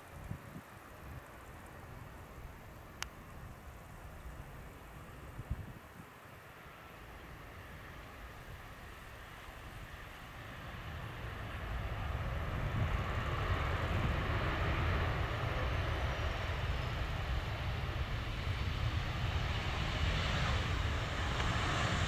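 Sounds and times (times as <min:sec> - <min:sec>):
jet engine roar: 0:06.5 - 0:22.0.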